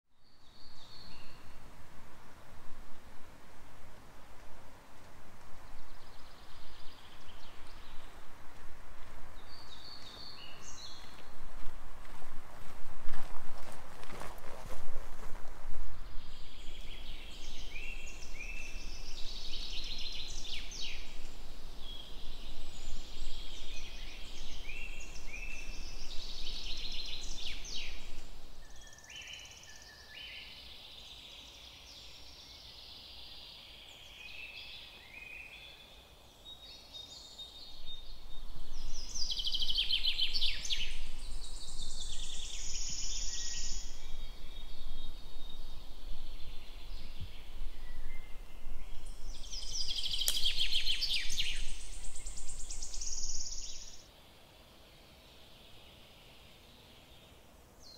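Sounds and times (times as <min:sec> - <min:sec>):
songbirds chirping: 0:00.1 - 0:57.9.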